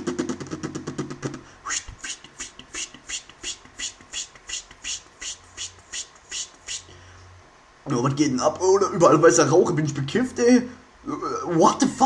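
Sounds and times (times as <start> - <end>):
cartoon hissing puffs: 1.3 - 7.0.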